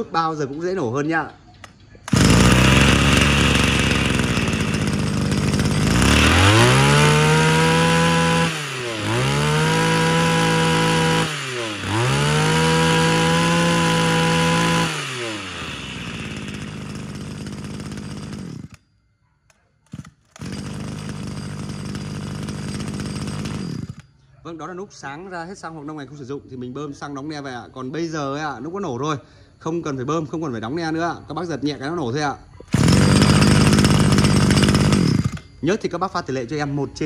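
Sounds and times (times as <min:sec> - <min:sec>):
recoil starter pull: 0:01.6 - 0:18.8, 0:19.5 - 0:24.2, 0:32.6 - 0:35.6
brush cutter engine revving: 0:02.0 - 0:18.8, 0:19.9 - 0:24.1, 0:32.6 - 0:35.6.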